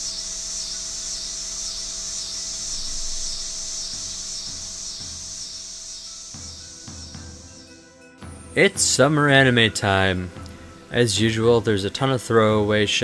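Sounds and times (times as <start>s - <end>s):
high rasping hiss: 0.0s - 13.0s
soft low thumps: 2.7s - 9.1s.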